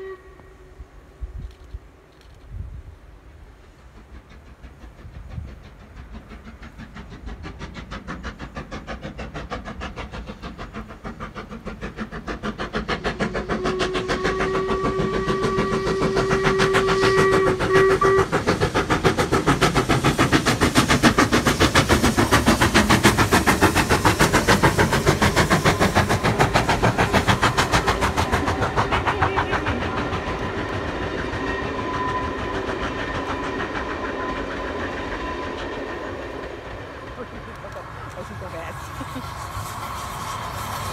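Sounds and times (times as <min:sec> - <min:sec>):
train whistle blast: 0:00.0 - 0:01.0, 0:13.2 - 0:18.4, 0:29.0 - 0:36.1
steam locomotive chuffing: 0:00.0 - 0:40.9.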